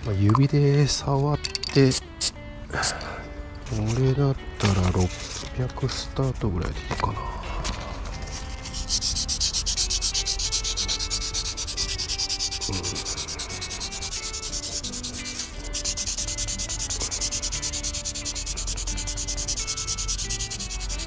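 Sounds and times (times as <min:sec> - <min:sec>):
sandpaper rubbing on metal rod: 0:08.1 - 0:21.0.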